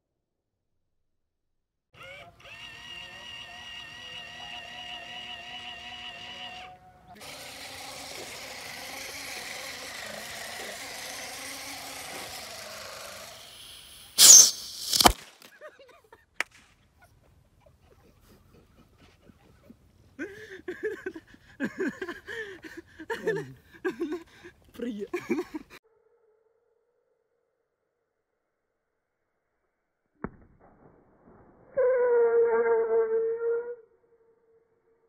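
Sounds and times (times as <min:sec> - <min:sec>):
gear and wheel noise over dirt: 0:02.0 - 0:13.6
small electric motor whining: 0:02.0 - 0:15.2.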